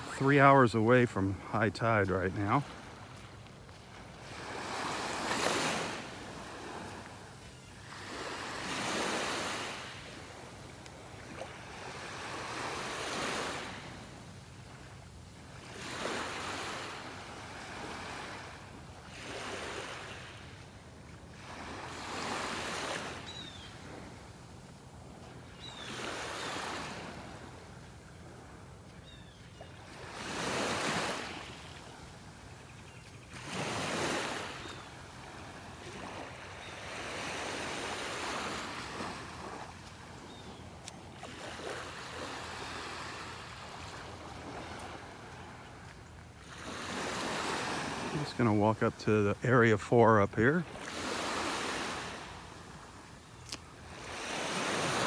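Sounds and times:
small waves breaking on beach: 0.0 - 55.0.

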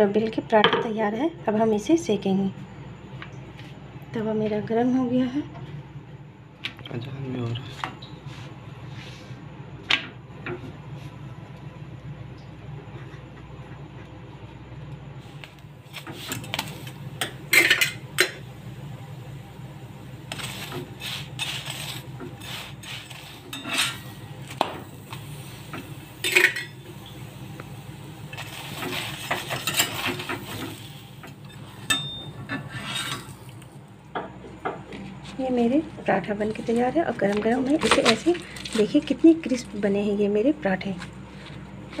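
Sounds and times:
low steady hum: 0.0 - 42.0
spatula scraping on griddle: 20.3 - 26.8, 28.3 - 33.6.

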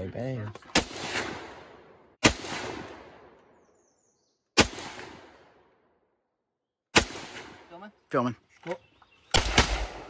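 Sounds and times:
rifle shots echoing: 0.7 - 3.4, 4.6 - 5.7, 6.9 - 7.8, 9.3 - 10.0.

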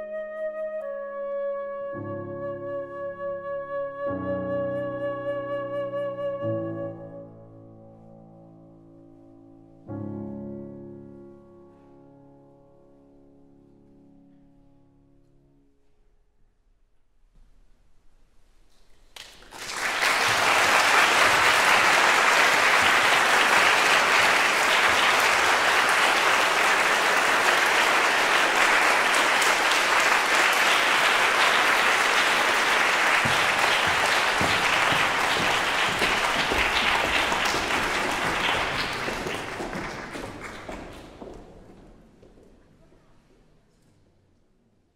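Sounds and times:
audience applauding: 19.2 - 41.7.

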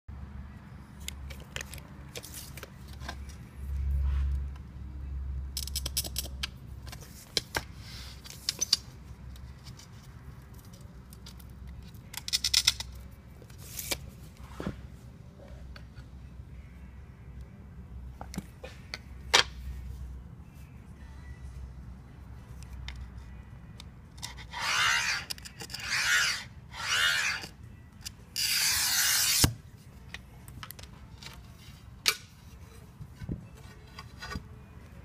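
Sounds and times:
glass cutter scratching glass: 24.3 - 27.6, 28.4 - 29.6.

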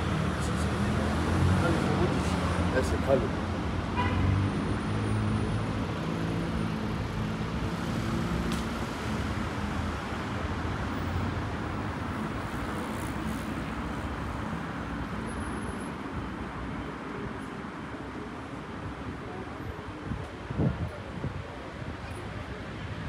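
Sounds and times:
passing car engines: 0.0 - 16.3.

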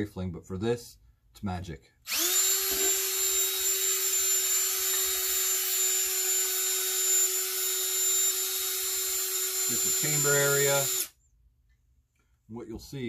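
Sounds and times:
cordless drill whining: 2.1 - 11.2.

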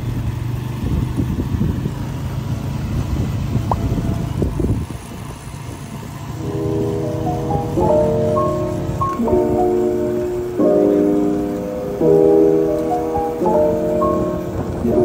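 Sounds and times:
engine low rumble: 0.0 - 15.0
background music: 6.4 - 15.0.

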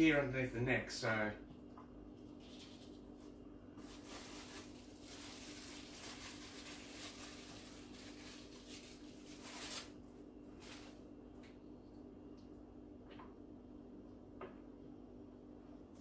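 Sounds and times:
plastic packaging rustling: 2.3 - 11.0.

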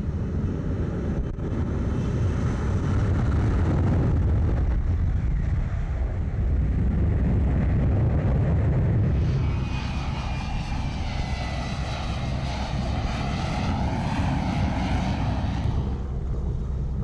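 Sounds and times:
high jet whine: 0.0 - 17.0
jet engine deep rumble: 0.0 - 17.0.

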